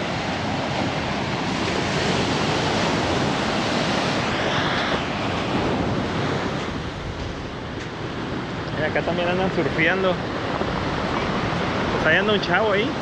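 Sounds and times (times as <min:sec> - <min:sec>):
ocean surf on rocky shore: 0:00.0 - 0:13.0
wind on microphone: 0:00.0 - 0:13.0.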